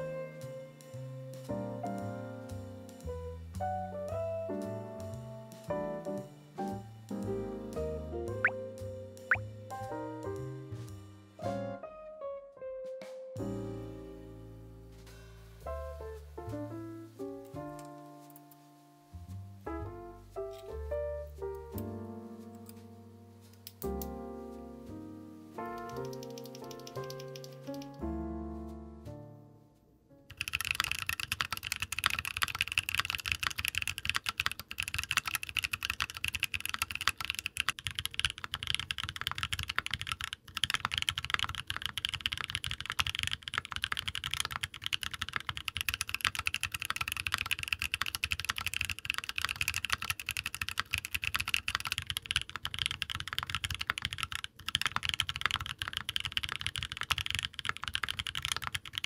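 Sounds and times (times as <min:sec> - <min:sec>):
mechanical keyboard typing: 0:25.7 - 0:28.0, 0:30.3 - 0:59.0.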